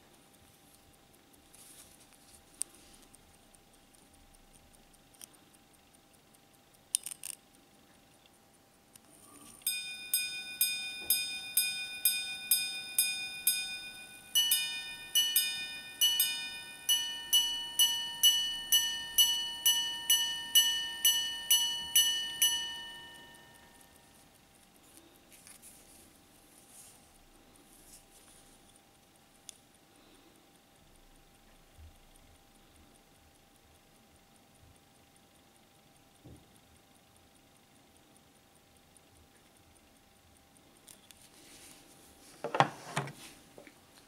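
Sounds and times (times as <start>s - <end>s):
watch chiming on gongs: 9.6s - 24.0s.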